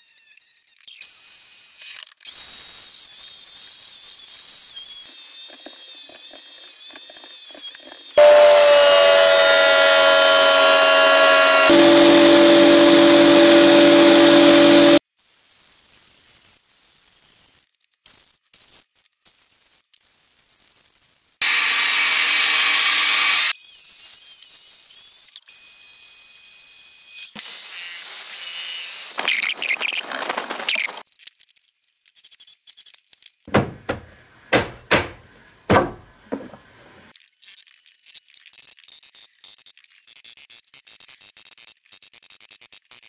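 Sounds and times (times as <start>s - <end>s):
power tool high whine: 4.7s - 15.0s, 21.4s - 23.6s
detail sander on wood: 8.2s - 15.0s
sharp knocks: 33.5s - 36.7s.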